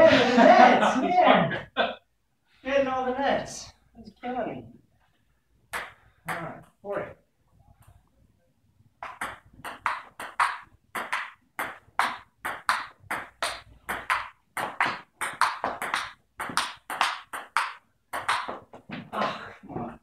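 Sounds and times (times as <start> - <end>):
table tennis ball hits: 5.7 - 6.7, 9.0 - 19.3.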